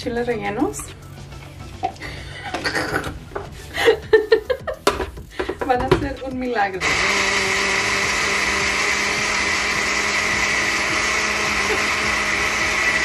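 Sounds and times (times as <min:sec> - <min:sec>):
blender running: 0:06.8 - 0:13.0.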